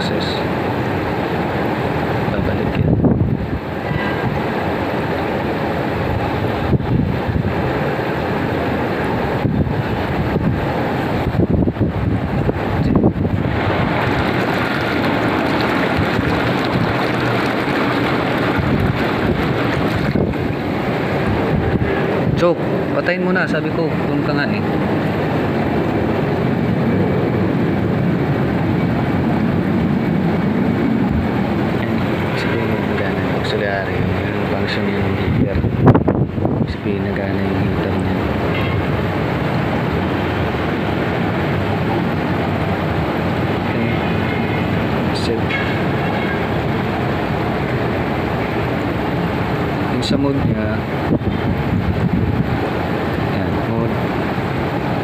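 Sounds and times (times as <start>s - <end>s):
jacuzzi jets bubbling water: 0.0s - 2.3s, 3.4s - 55.0s
churning bubbling water: 12.2s - 22.4s
pump noise: 12.2s - 22.9s, 23.6s - 36.4s, 37.4s - 55.0s.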